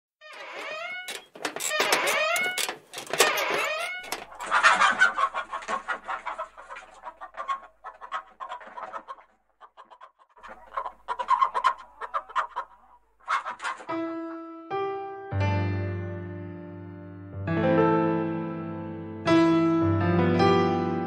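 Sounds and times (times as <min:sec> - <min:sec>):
chicken-like clucking: 0:02.0 - 0:13.9.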